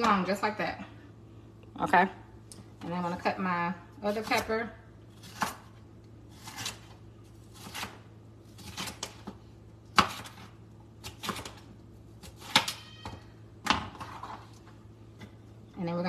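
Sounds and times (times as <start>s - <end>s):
knife slicing pepper: 6.3s - 11.6s.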